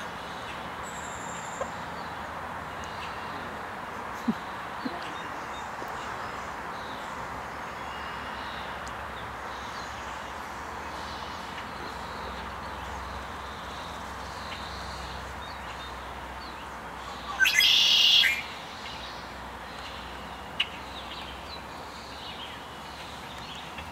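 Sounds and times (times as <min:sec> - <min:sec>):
faint bird chirps: 0:17.1 - 0:19.1
loud bird call: 0:17.2 - 0:18.6.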